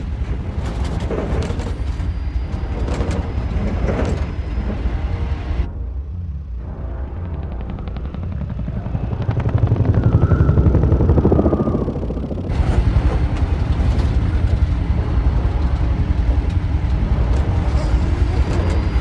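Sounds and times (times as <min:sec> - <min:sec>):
helicopter cabin rumble: 0:00.0 - 0:19.0
helicopter rotor beat: 0:00.0 - 0:19.0
low engine drone: 0:00.0 - 0:19.0
brief whine: 0:01.5 - 0:05.7, 0:17.6 - 0:19.0.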